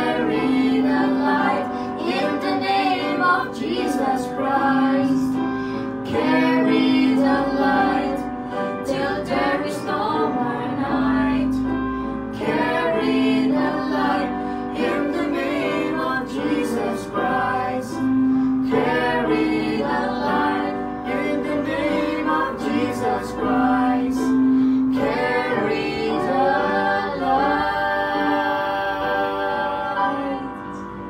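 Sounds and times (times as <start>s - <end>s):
people singing gospel song: 0.0s - 30.7s.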